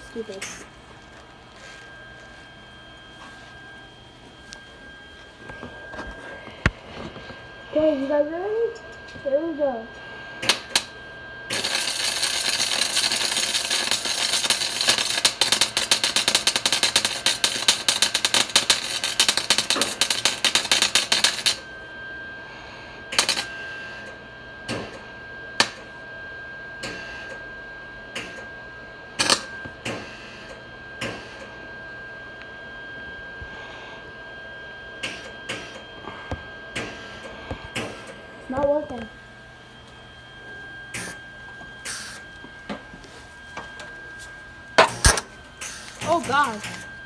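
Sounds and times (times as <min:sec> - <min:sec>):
welding arc crackling: 0:10.4 - 0:21.6, 0:23.1 - 0:23.5, 0:41.8 - 0:42.3, 0:43.8 - 0:46.9.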